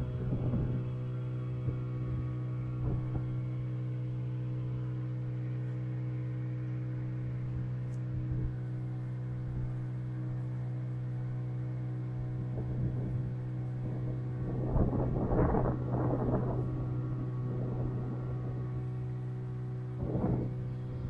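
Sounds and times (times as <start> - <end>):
boat engine droning: 0.0 - 21.0
low bumps: 12.3 - 21.0.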